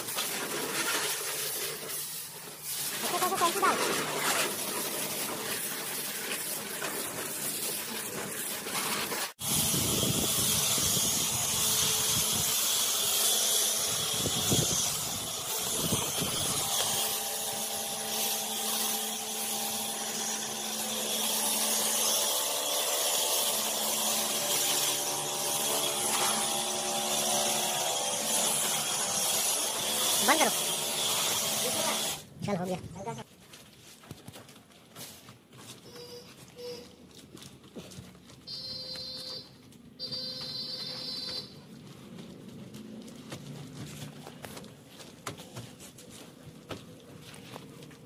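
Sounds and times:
pressure washer water jet hissing: 0:00.0 - 0:32.2
washer motor and pump humming: 0:13.4 - 0:32.2.

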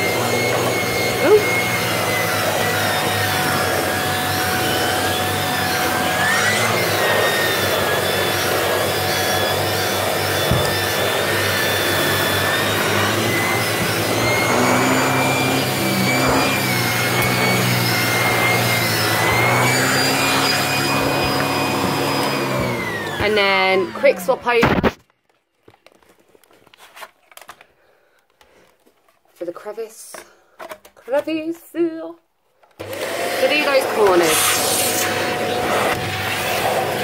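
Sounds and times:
vacuum cleaner motor whine: 0:00.0 - 0:24.9, 0:32.8 - 0:37.0.

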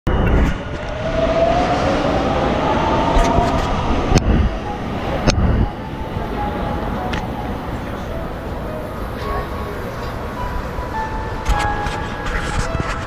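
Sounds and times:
low rumble: 0:00.1 - 0:09.2.

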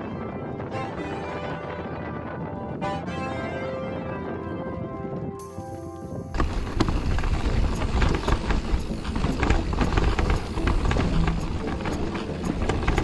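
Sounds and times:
wind buffeting microphone: 0:00.0 - 0:13.0
bike tyres crunching on dirt: 0:05.4 - 0:13.0
bike rattling over bumps: 0:06.2 - 0:13.0.

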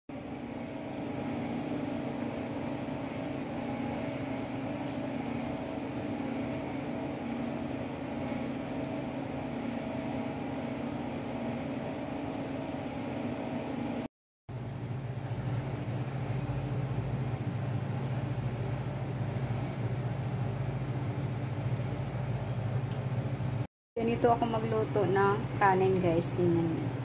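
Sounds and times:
steady mechanical hum: 0:00.1 - 0:27.0.

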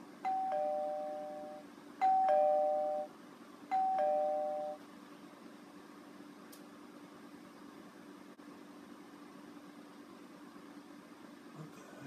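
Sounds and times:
two-tone doorbell chime: 0:00.2 - 0:03.1, 0:03.7 - 0:04.8.

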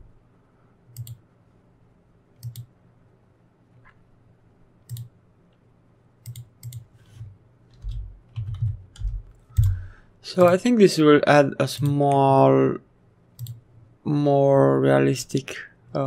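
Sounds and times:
computer mouse clicking: 0:00.9 - 0:01.2, 0:02.4 - 0:02.7, 0:04.9 - 0:05.1, 0:06.2 - 0:09.8, 0:13.4 - 0:13.6.

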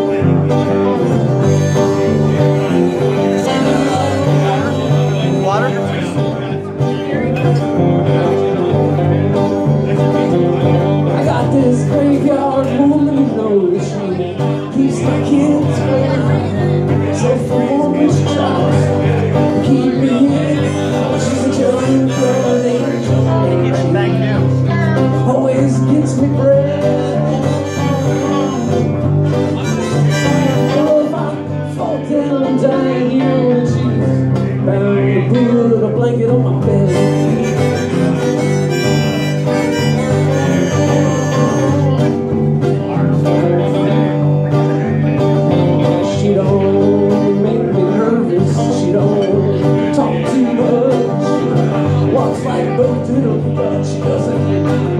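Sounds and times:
harmonica lead: 0:00.0 - 0:06.6, 0:18.2 - 0:25.1, 0:25.8 - 0:31.4, 0:36.7 - 0:42.6
country band playing: 0:00.0 - 0:54.9.

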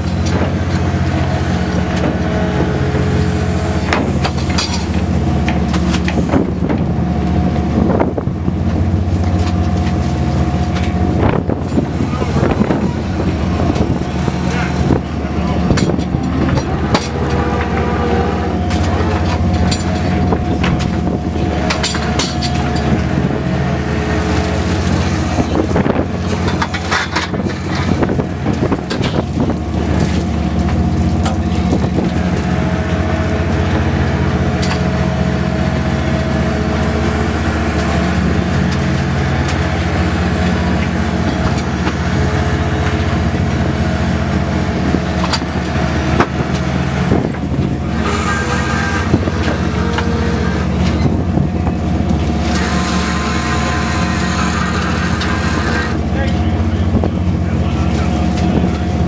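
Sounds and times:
boat engines humming: 0:00.0 - 0:59.0
knocks and clatter: 0:14.6 - 0:18.0.

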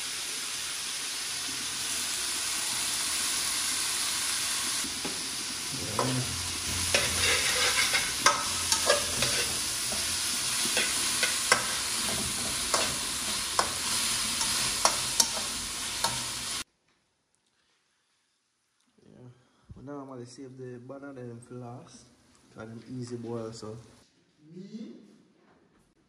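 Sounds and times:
vegetables sizzling in oil: 0:00.0 - 0:16.7
metal spatula scraping pan: 0:06.0 - 0:16.3.

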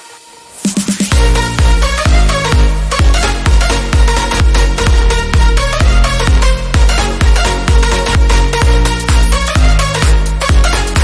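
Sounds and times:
electronic dance music: 0:00.0 - 0:11.0
heavy bass drum beat: 0:00.7 - 0:11.0.

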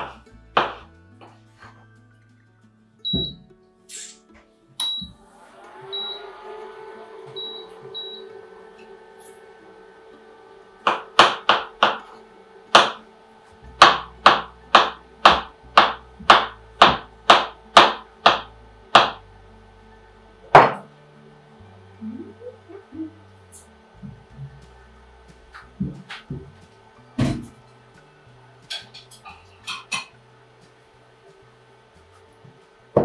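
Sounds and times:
knife chopping on cutting board: 0:00.0 - 0:00.9, 0:10.9 - 0:12.1, 0:12.8 - 0:13.0, 0:13.8 - 0:19.2.

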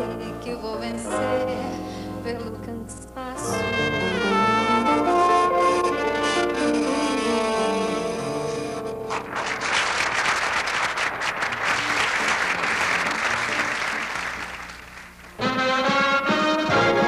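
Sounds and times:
theme music: 0:03.5 - 0:10.1, 0:15.3 - 0:17.0
audience applause: 0:09.1 - 0:15.4.

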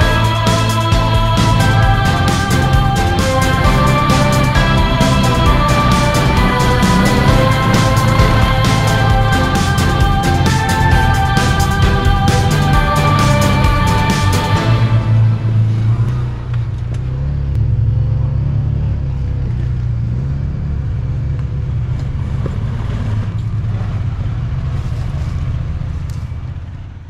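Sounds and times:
music: 0:00.0 - 0:16.4
vehicle engine droning: 0:00.0 - 0:27.0.

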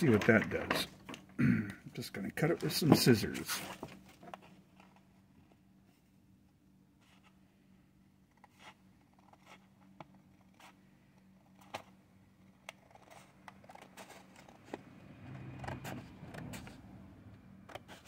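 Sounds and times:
plastic handling rustle: 0:02.4 - 0:06.0.

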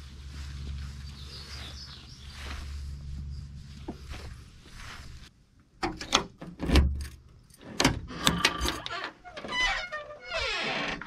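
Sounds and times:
keys jangling in a lock: 0:06.0 - 0:07.9.

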